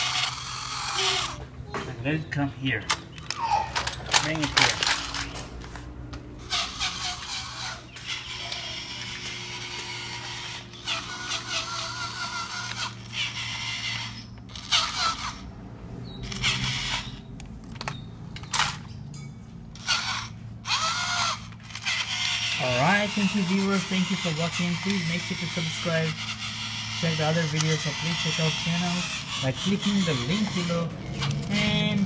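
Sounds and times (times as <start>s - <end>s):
toy train motor whirring: 0.0s - 1.4s, 2.9s - 5.4s, 6.4s - 15.5s, 16.2s - 18.9s, 19.8s - 32.0s
plastic trucks rattling: 2.8s - 5.5s.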